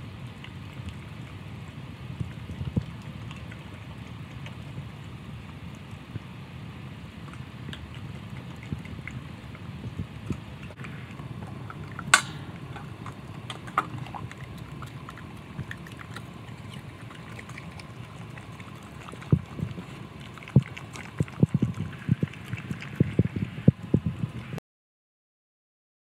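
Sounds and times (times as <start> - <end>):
dog licking a metal bowl: 0.0 - 24.5.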